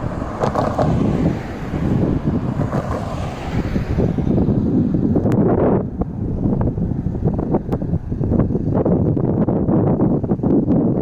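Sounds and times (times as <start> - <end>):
car driving past: 0.0 - 7.7
wind buffeting microphone: 0.0 - 11.0.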